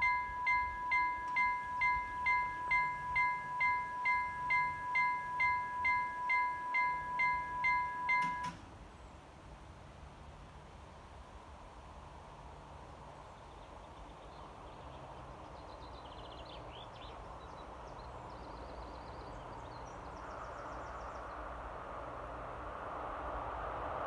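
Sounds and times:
diesel train rumble: 0.0s - 24.0s
rushing rail noise: 0.0s - 24.0s
small birds chirping: 13.4s - 21.6s.

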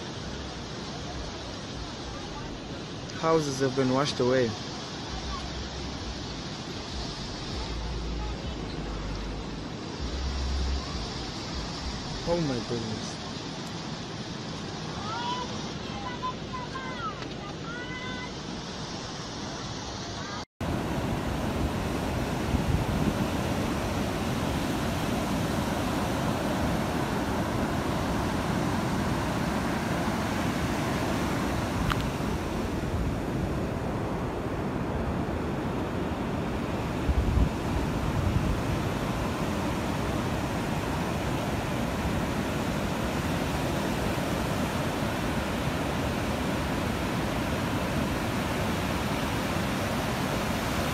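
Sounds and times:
floodwater rushing: 0.0s - 50.9s
rough sea surf: 0.0s - 50.9s
wind buffeting the microphone: 20.6s - 50.9s.

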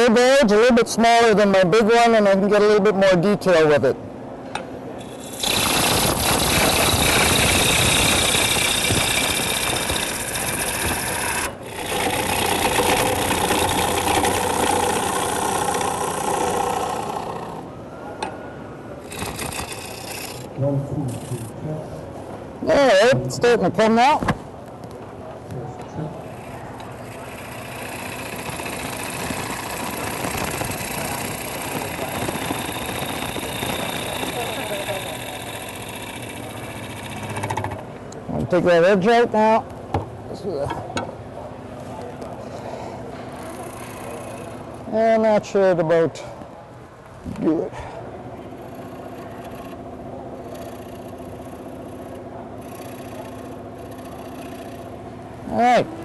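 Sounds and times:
gouge cutting wood on a lathe: 5.0s - 17.7s, 19.0s - 21.5s, 26.3s - 37.9s, 43.4s - 44.8s, 48.5s - 55.0s.

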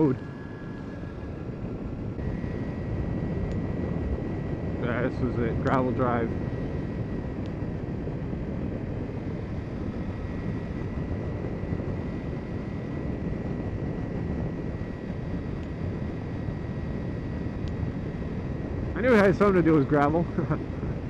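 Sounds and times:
motorcycle engine cruising: 0.0s - 21.0s
wind and road noise: 0.0s - 21.0s.

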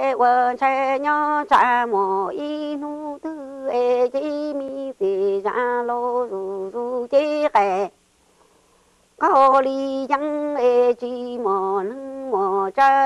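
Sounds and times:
woman singing unaccompanied: 0.0s - 8.0s, 9.2s - 13.0s
singer breathing: 8.2s - 9.2s.

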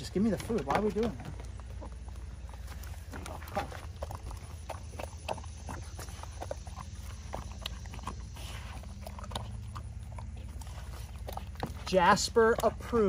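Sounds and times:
dog chewing and gulping: 0.0s - 13.0s.

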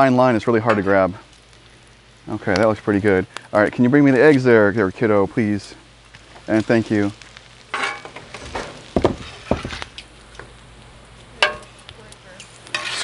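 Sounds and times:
bacon sizzling on a griddle: 0.0s - 13.0s
metal spatulas scraping: 7.8s - 8.1s, 12.7s - 13.0s.

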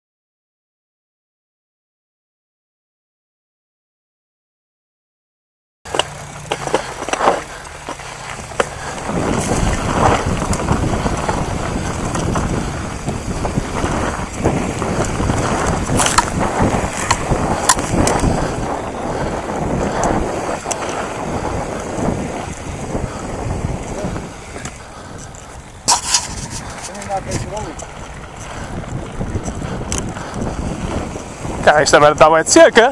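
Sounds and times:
bike rattles and knocks: 5.9s - 32.9s
tyres on dirt: 5.9s - 32.9s
wind rushing on microphone: 8.3s - 32.9s
sharp clicks: 24.6s - 30.6s.

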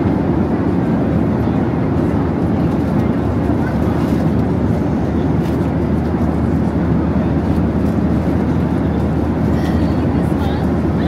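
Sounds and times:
airliner cabin roar: 0.0s - 11.0s.

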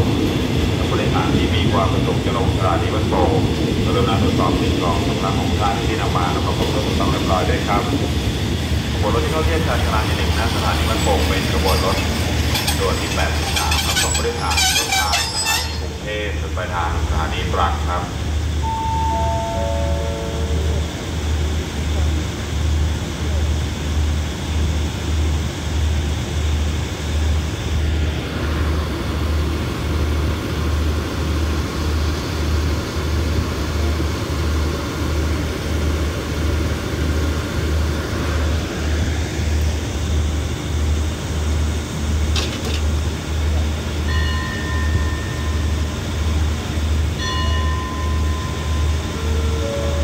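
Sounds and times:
train diesel engine idling: 0.0s - 50.0s
short high-pitched tones: 18.6s - 20.9s.

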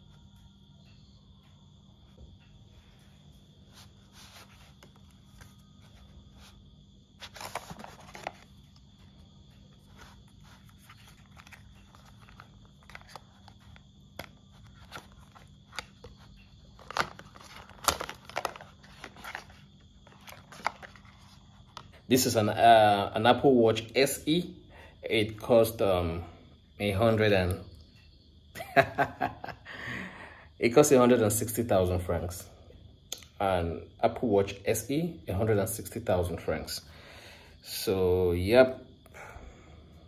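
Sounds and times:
paper and card rustling: 3.7s - 6.6s, 7.2s - 22.3s.

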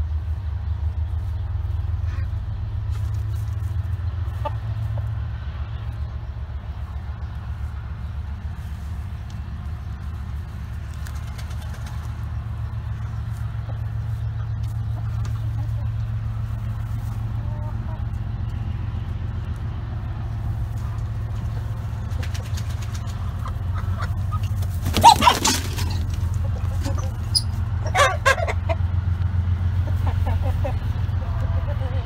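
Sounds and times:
steady low rumble: 0.0s - 24.8s
chicken clucking: 4.2s - 5.1s, 13.0s - 18.2s, 20.9s - 28.9s, 29.7s - 32.0s.

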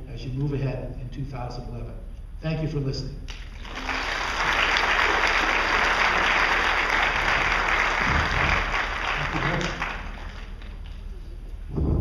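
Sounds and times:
audience applauding: 3.4s - 11.2s.

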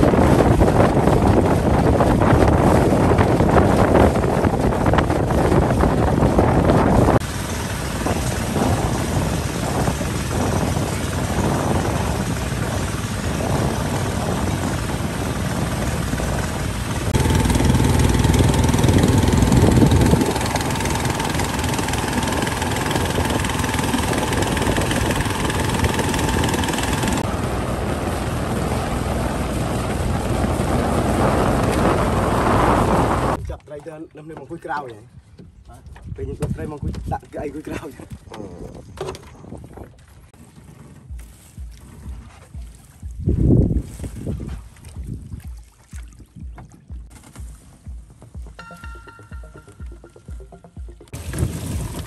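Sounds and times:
boat engine running: 0.0s - 33.4s, 35.4s - 52.0s
wind buffeting microphone: 0.0s - 33.6s, 35.0s - 47.1s, 51.1s - 52.0s.

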